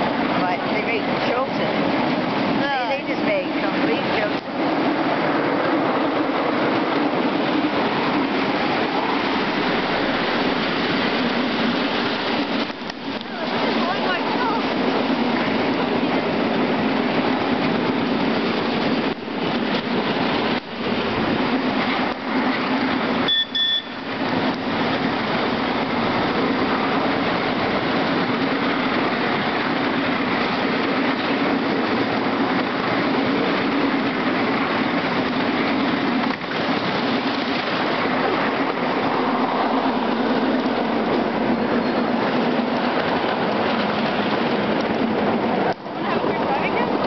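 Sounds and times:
short high beep: 0:23.3 - 0:24.1.

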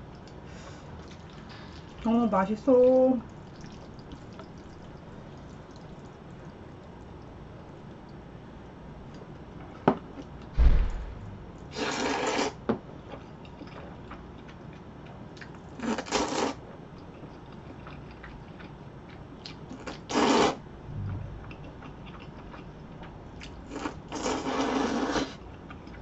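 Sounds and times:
chewing: 0:03.4 - 0:06.6, 0:13.1 - 0:16.3, 0:17.0 - 0:20.2
low thump: 0:10.6 - 0:11.6, 0:20.9 - 0:21.8
noodles being slurped: 0:20.1 - 0:20.6, 0:23.7 - 0:25.4.

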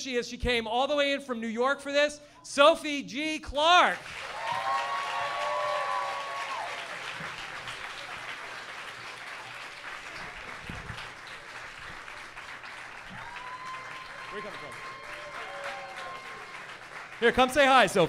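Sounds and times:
audience clapping: 0:03.9 - 0:18.0.

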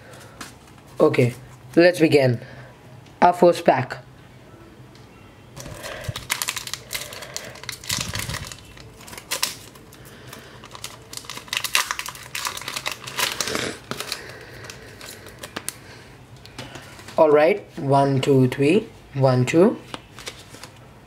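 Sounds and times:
foil wrapper tearing and crinkling: 0:05.6 - 0:15.8.

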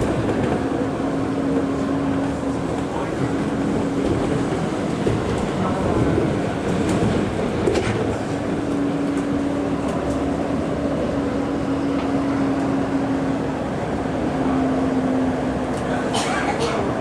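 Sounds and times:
monorail rolling rumble: 0:00.0 - 0:17.0.

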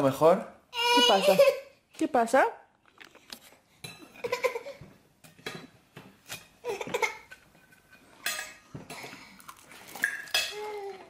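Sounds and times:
baby whimpering: 0:00.8 - 0:01.6
dishes and cutlery clinking: 0:03.8 - 0:11.0.

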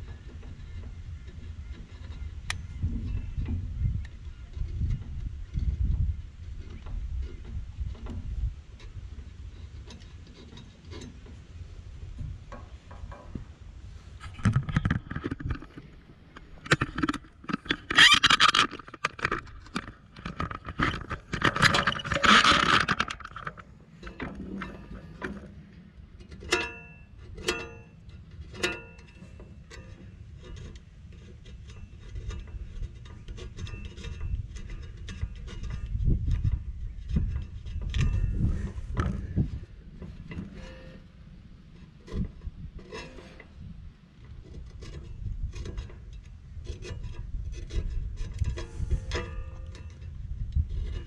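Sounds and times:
tools clicking and scraping on metal: 0:14.3 - 0:25.6, 0:26.2 - 0:41.0, 0:41.8 - 0:51.0.

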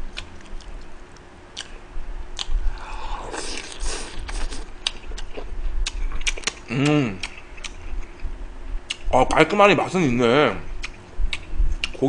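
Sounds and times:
chewing: 0:01.6 - 0:01.8, 0:02.4 - 0:08.3, 0:10.8 - 0:12.0
slurping noodles: 0:03.2 - 0:04.6.

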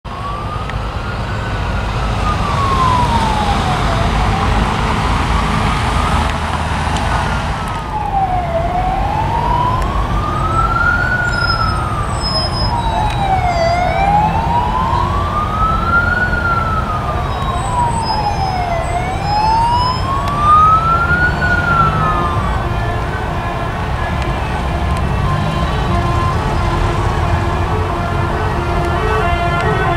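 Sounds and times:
emergency siren wailing: 0:00.1 - 0:29.9
motorway traffic rumble: 0:00.1 - 0:29.9.

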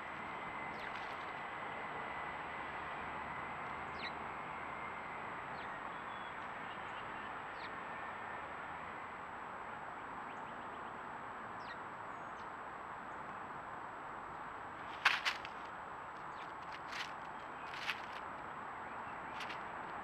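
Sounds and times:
small birds chirping: 0:03.8 - 0:04.2, 0:14.8 - 0:20.0
steady rushing background noise: 0:14.2 - 0:20.0.

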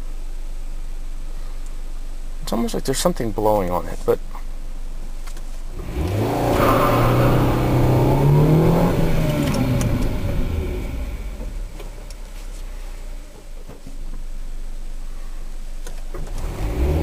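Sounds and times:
car engine accelerating: 0:05.7 - 0:13.5, 0:16.2 - 0:17.0.

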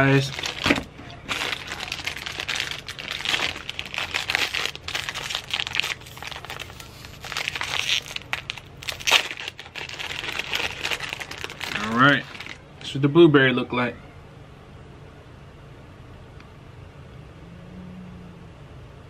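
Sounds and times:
plastic wrapper crinkling: 0:00.0 - 0:12.6.

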